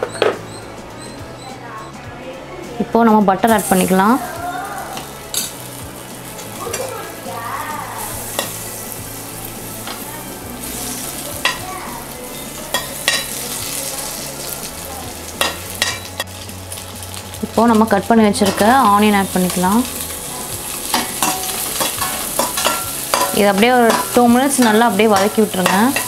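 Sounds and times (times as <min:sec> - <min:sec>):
butter sizzling in a pot: 0:03.4 - 0:26.0
metal utensils clicking on pot: 0:12.4 - 0:13.4, 0:15.4 - 0:16.3, 0:18.4 - 0:19.7, 0:20.9 - 0:26.0.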